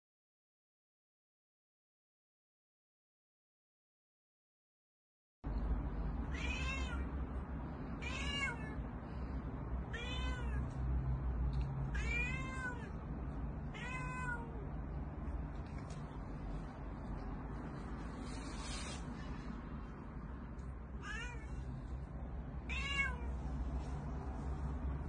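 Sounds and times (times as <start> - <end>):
low background hum: 5.4 - 25.0
cat meowing: 6.2 - 7.1, 8.0 - 8.8, 9.9 - 10.8, 11.8 - 13.0, 13.6 - 14.7, 21.0 - 21.8, 22.6 - 23.4.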